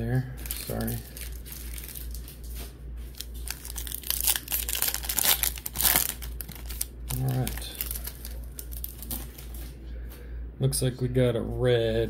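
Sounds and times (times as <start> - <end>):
foil wrapper crinkling and tearing: 0.4 - 9.6.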